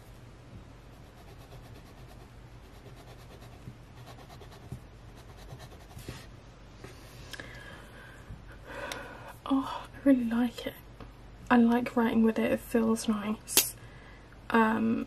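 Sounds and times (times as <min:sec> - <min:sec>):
pen nib scratching on paper: 0:00.9 - 0:06.1.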